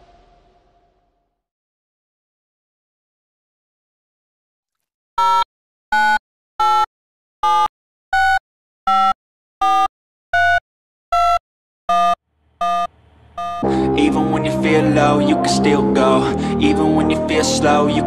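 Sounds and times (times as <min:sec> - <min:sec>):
short electronic beeps: 0:11.2 - 0:13.6.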